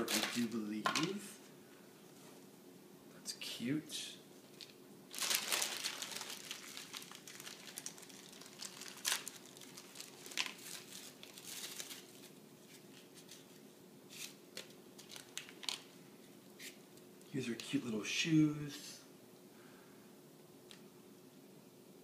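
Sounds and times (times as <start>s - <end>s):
plastic bags crinkling: 0.0s - 0.5s, 4.6s - 13.4s, 14.2s - 15.9s.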